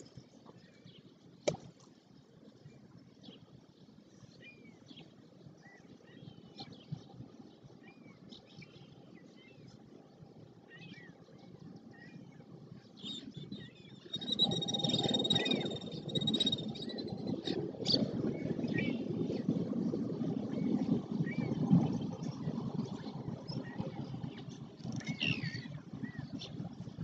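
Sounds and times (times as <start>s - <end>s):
small birds chirping: 10.6s - 19.4s, 20.6s - 26.9s.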